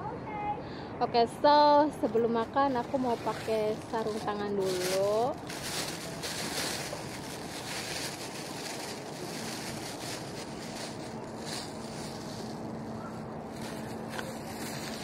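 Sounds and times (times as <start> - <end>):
plastic gloves rustling: 2.2 - 15.0
outdoor wind hiss: 5.2 - 15.0.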